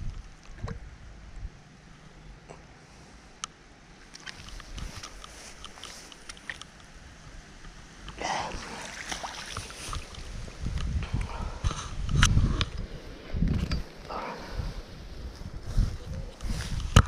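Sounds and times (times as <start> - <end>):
net and tackle knocks and clicks: 4.1 - 6.9
wind buffeting microphone: 4.3 - 17.0
water splashing: 8.2 - 10.5.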